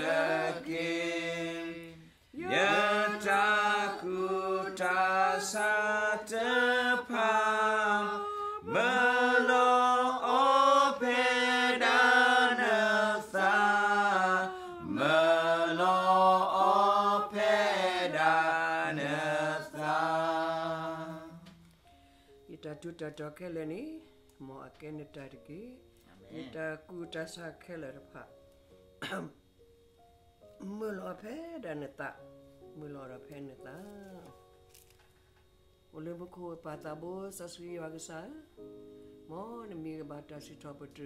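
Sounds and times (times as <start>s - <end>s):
people singing a hymn: 0.0s - 21.7s.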